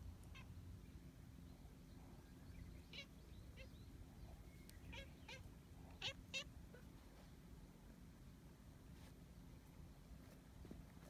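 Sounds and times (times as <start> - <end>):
cat chirping meows: 4.8 - 6.5.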